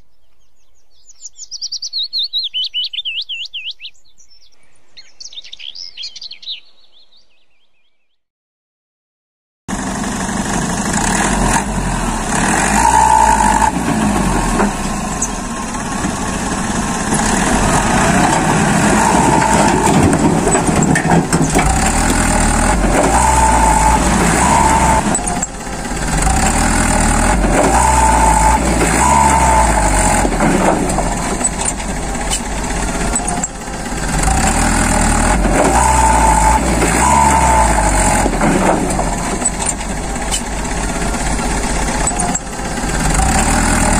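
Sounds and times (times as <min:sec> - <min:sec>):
truck engine running: 0:09.7 - 0:43.9.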